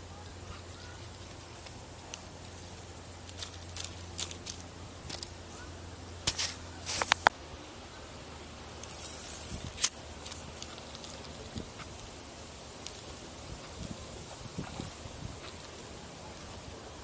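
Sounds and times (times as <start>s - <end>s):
short hiss of casting line: 8.8s - 10.0s.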